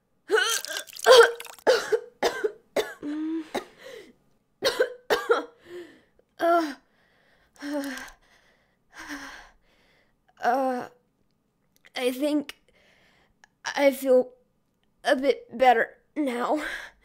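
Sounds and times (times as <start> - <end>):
woman retching and coughing: 0.3 - 3.7, 4.6 - 5.6
woman panting breaths: 3.0 - 4.2, 5.6 - 6.2.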